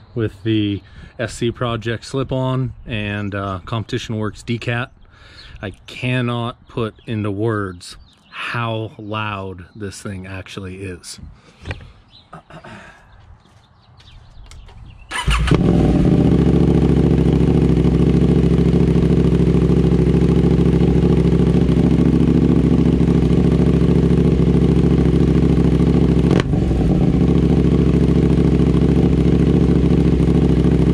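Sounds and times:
motorcycle engine starting and idling: 14.5 - 30.9.

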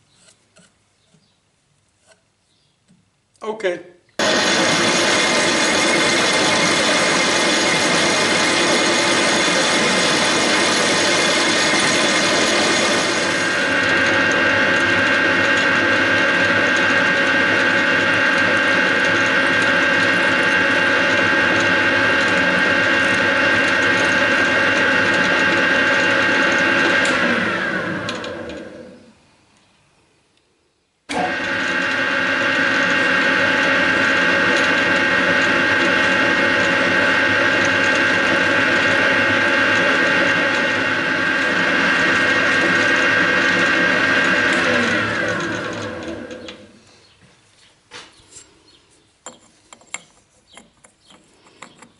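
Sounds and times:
metal lathe running with gear whine: 4.2 - 29.0, 31.1 - 46.8.

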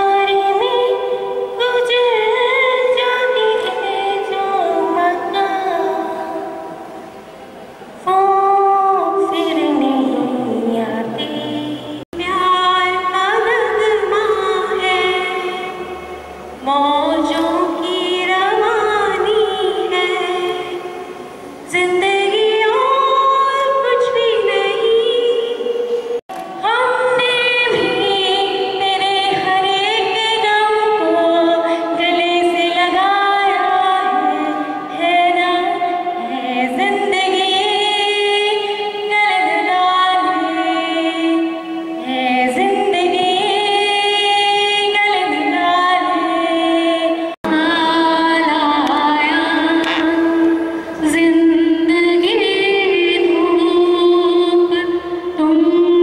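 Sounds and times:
woman singing unaccompanied: 0.0 - 7.1, 8.0 - 56.0.

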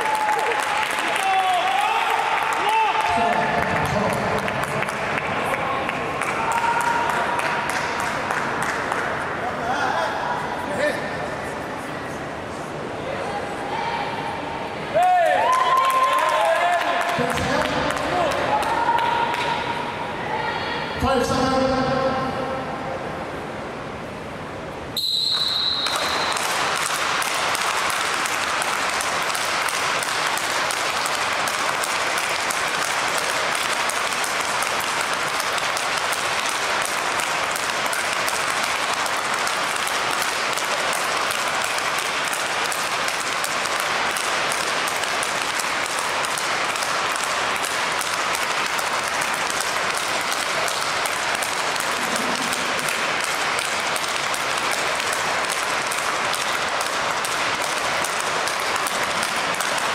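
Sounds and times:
rackets hitting balls: 25.3 - 59.9.

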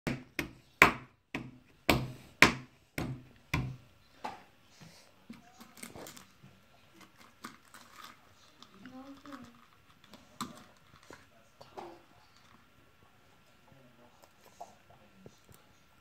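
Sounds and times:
hand slapping wooden tabletop: 0.1 - 3.8
small clicks and rustles: 5.4 - 11.3.

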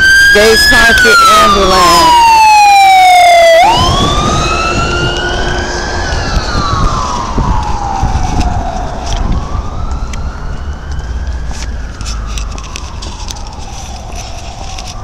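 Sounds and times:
ambulance siren wailing: 0.0 - 15.0
low rumble: 3.7 - 10.6.

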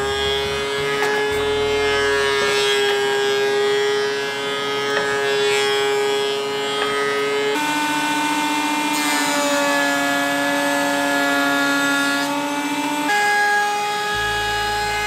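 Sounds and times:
planer high-pitched whine: 0.0 - 15.0
wood boards knocking: 4.8 - 5.8, 6.7 - 7.3.

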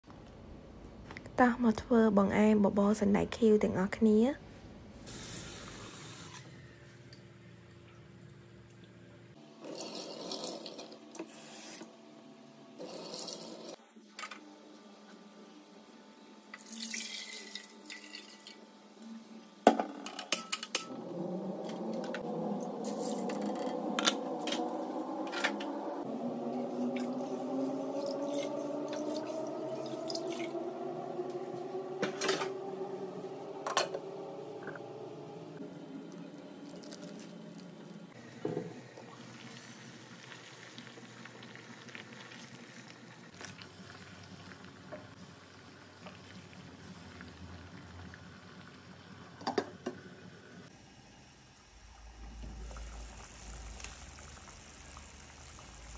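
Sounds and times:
steady hum: 20.7 - 40.7.

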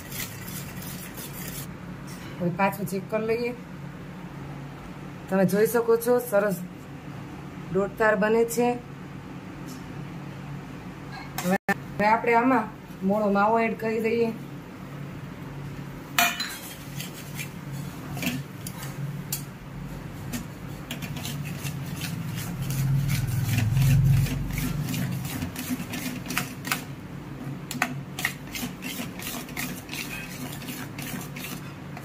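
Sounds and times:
metal spatula scraping steel pan: 0.0 - 1.7, 20.7 - 26.8, 28.2 - 31.8.

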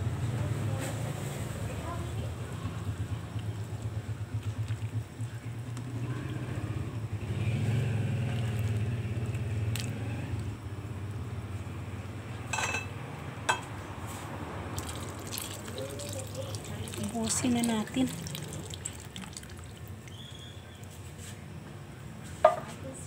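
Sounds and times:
soup boiling in a pot: 2.2 - 7.2, 8.0 - 11.4, 14.7 - 21.0
ladle stirring soup: 8.2 - 10.5, 14.8 - 21.0.

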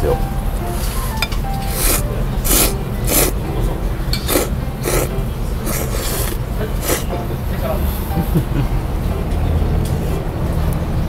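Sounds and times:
person slurping noodles: 0.8 - 3.4, 4.2 - 7.2.

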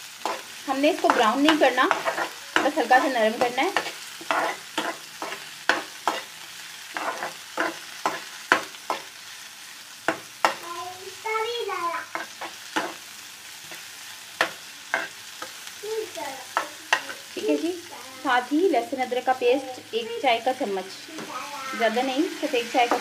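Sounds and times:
onion sizzling in a pan: 0.0 - 23.0
spoon scraping a pan: 0.2 - 10.6, 12.1 - 15.8, 16.5 - 17.7, 20.4 - 23.0.

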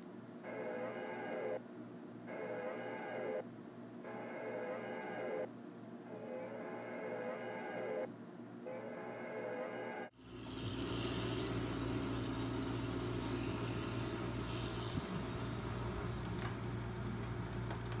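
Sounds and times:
vehicle motor running: 10.1 - 18.0.

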